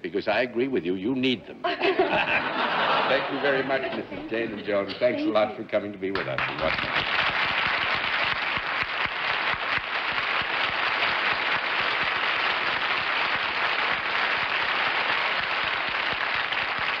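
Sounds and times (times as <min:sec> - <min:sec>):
studio audience applauding: 0:06.2 - 0:17.0.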